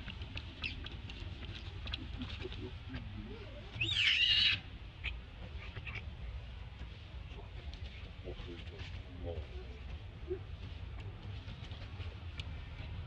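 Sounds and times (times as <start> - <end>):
baby monkey screaming: 3.8 - 4.6.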